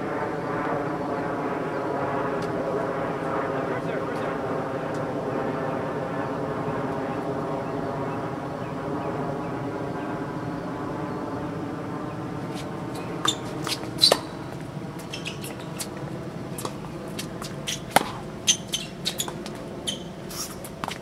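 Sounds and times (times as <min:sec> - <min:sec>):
distant engine drone: 0:00.0 - 0:21.0
shoe squeaks: 0:12.5 - 0:16.0, 0:16.6 - 0:21.0
ball hitting racket: 0:12.6 - 0:21.0.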